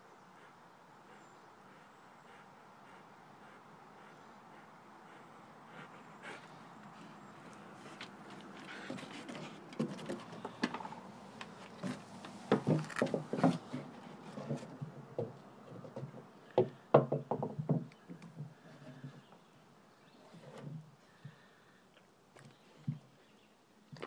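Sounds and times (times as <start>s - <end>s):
dog moving on wooden planks: 5.8s - 16.3s.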